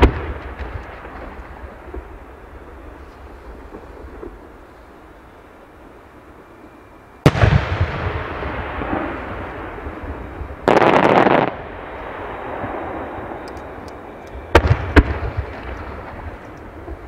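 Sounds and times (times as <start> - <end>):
fireworks booming: 0.0 - 2.8, 7.2 - 13.8, 14.4 - 17.0
fireworks rushing burst: 7.2 - 13.4
rumbling echo: 7.3 - 13.8.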